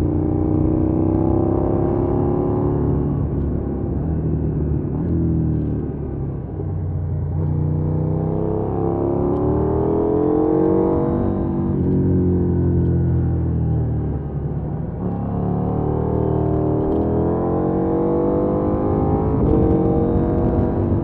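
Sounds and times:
motorcycle engine revving: 15.0 - 21.0.

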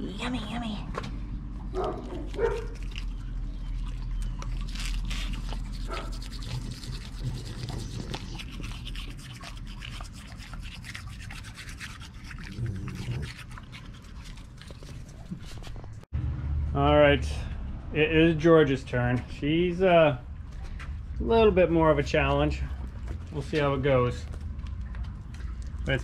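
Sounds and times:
toothbrush scrubbing teeth: 2.2 - 15.8
wet mouth clicks: 3.9 - 15.4.

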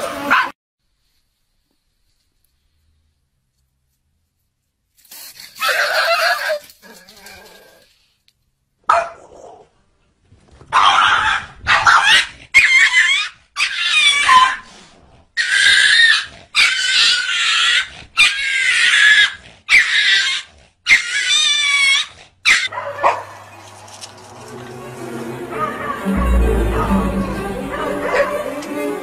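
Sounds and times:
small dog crying: 5.6 - 6.7, 10.8 - 14.6, 15.4 - 23.2.

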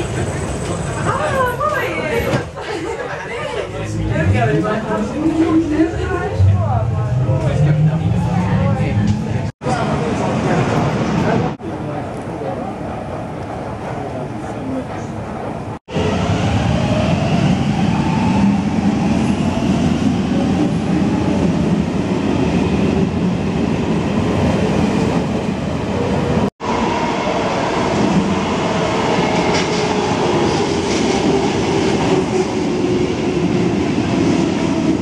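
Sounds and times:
metro train wheels rumbling: 0.0 - 35.0
train whine: 15.9 - 35.0.

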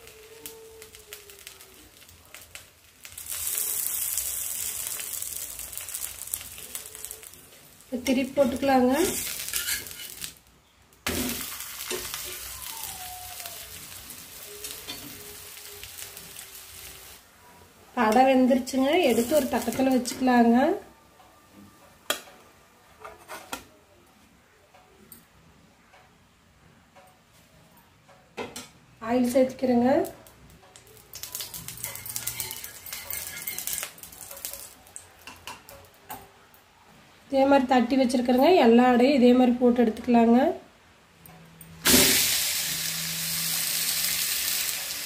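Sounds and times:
oil sizzling on griddle: 0.0 - 17.2, 18.6 - 20.5, 30.7 - 35.6, 41.8 - 45.0.

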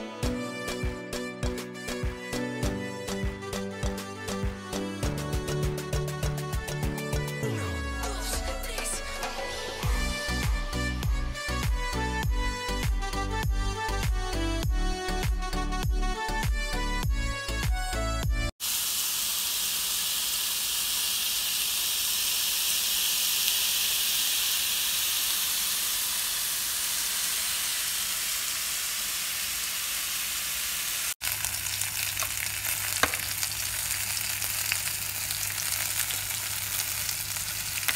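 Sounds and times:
patties sizzling in grill pan: 18.6 - 37.9.

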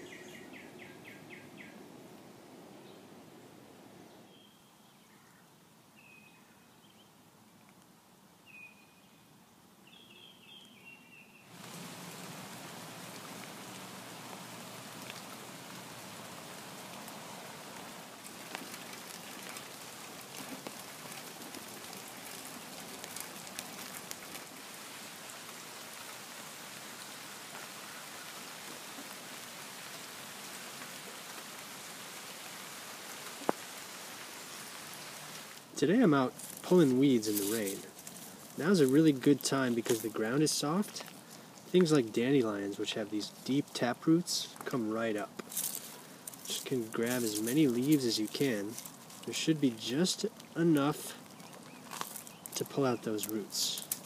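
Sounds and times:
bird chirps: 0.0 - 1.8, 4.1 - 7.1, 8.4 - 11.6
rain falling on plants: 0.0 - 2.8, 11.5 - 54.0.

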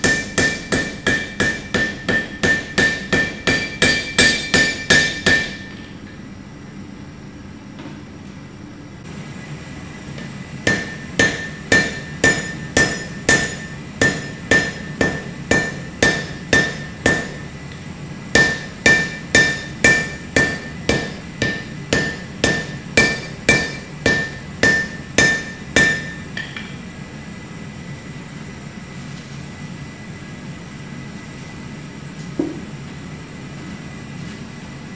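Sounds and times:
hammer striking metal on anvil: 0.0 - 6.2, 10.6 - 17.5, 18.3 - 26.8.

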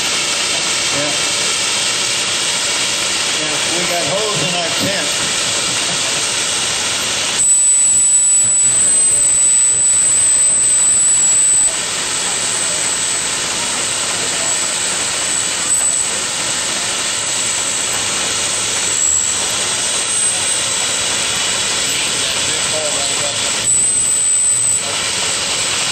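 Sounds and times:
hose streams spraying: 0.0 - 7.4, 11.8 - 25.9
steam hissing: 0.0 - 25.9
high whistling hiss: 6.6 - 22.2.

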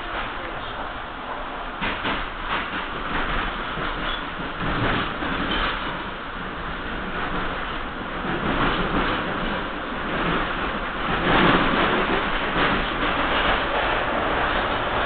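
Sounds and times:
subway wheels rumbling on rail: 0.0 - 15.0.

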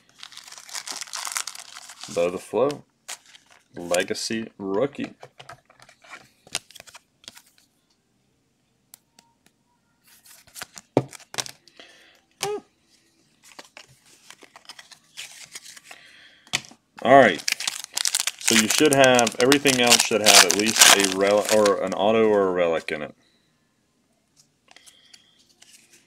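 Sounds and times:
cards sliding and rustling: 13.4 - 16.0, 24.7 - 26.0.

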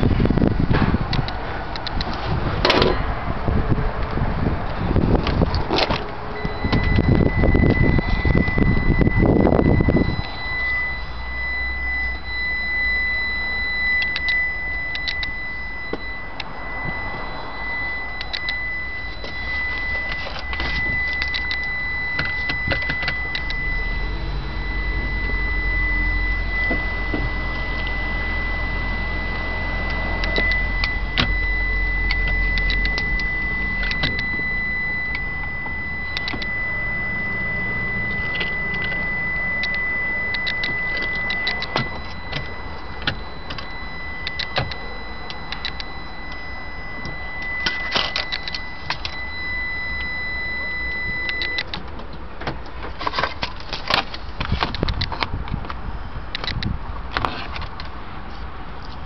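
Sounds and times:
high-pitched electronic beep tone: 5.7 - 51.8.

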